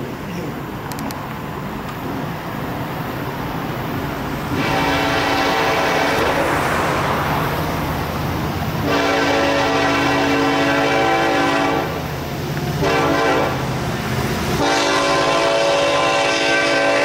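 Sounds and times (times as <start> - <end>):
freight train rumbling past: 0.0 - 17.0
car passing: 3.4 - 11.0
locomotive horn chord: 4.5 - 6.9, 8.8 - 12.0, 12.8 - 13.6, 14.6 - 17.0.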